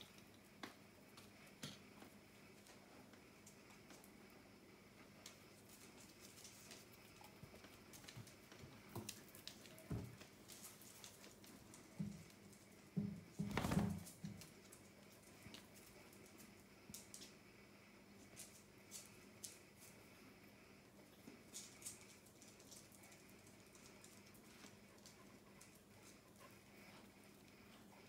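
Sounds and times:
paws pattering on hard floor: 0:05.0 - 0:16.5, 0:21.2 - 0:28.0.

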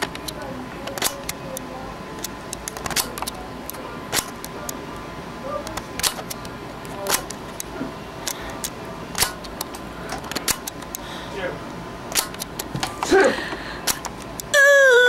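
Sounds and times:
sharp clicks: 0:00.0 - 0:04.8, 0:05.6 - 0:11.0, 0:12.1 - 0:13.1, 0:13.9 - 0:14.5.

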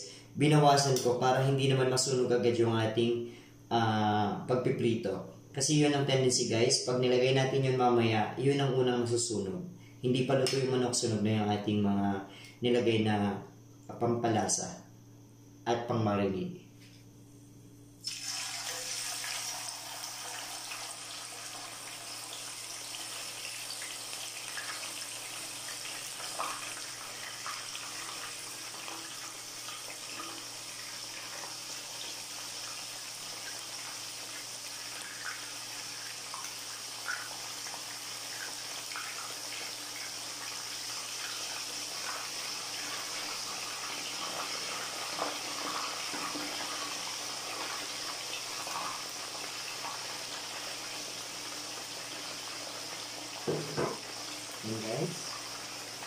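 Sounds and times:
chicken sizzling in oil: 0:18.0 - 0:56.0.

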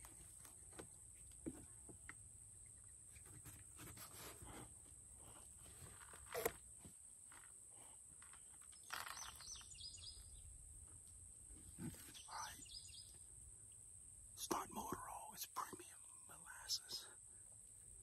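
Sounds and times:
faint bird chirps: 0:07.8 - 0:10.6, 0:11.7 - 0:18.0.

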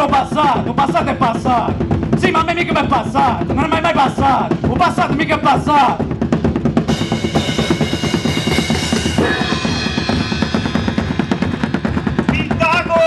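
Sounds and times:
fast steady drumming: 0:00.0 - 0:13.0
high held tones: 0:06.9 - 0:12.6.

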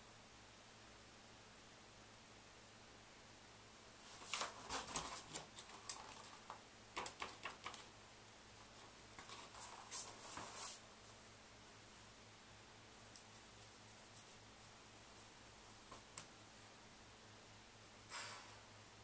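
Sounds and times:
stiff paper rustling: 0:04.0 - 0:07.9, 0:08.7 - 0:10.8.

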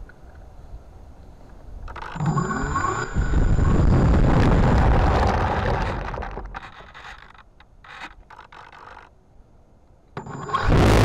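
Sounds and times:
propeller wind buffeting microphone: 0:01.8 - 0:06.7
model plane motor whine: 0:02.0 - 0:04.0, 0:10.2 - 0:11.0.

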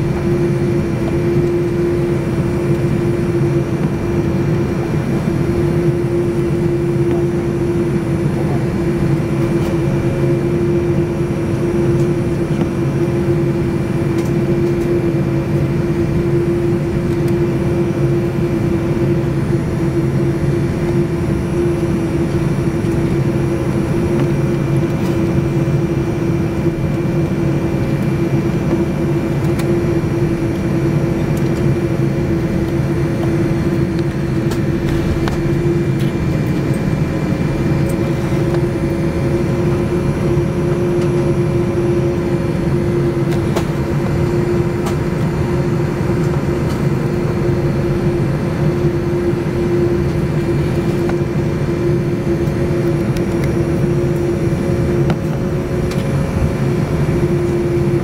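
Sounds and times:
jet engines idling: 0:00.0 - 0:58.0.

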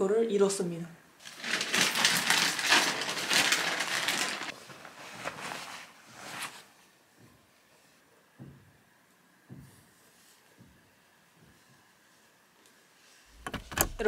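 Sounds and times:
rustling and crinkling: 0:01.2 - 0:08.0.

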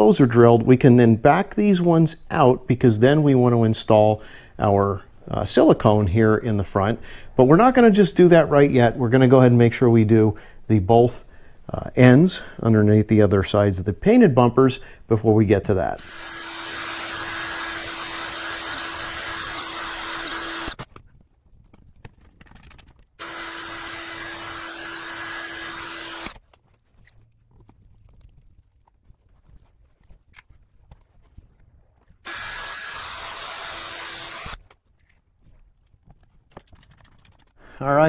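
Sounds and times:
cordless drill running: 0:15.9 - 0:20.9, 0:23.2 - 0:26.4, 0:32.2 - 0:34.6.

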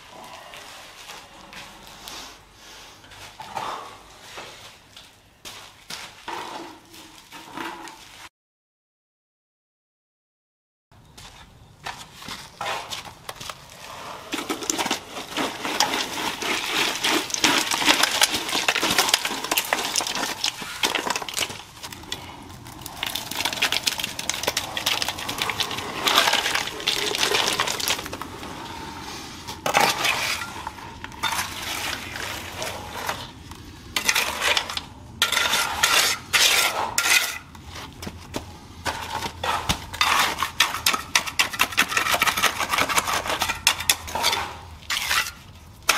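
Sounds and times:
hand tools scraping wet concrete: 0:12.4 - 0:45.9.

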